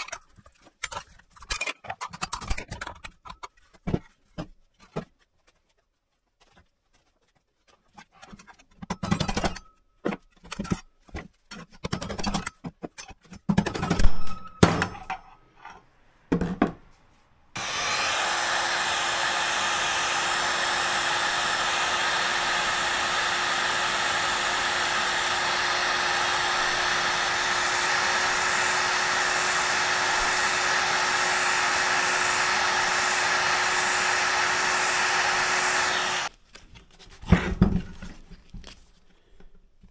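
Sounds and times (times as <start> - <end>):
heat gun humming: 17.6 - 36.3.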